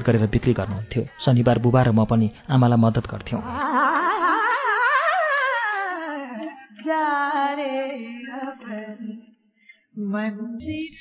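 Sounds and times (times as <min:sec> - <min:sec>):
solo voice singing with vibrato: 0:03.4 - 0:09.3, 0:10.0 - 0:11.0.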